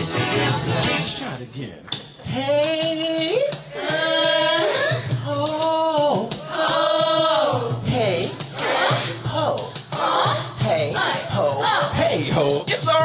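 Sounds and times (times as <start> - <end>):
female backing singers: 3.5 - 13.0.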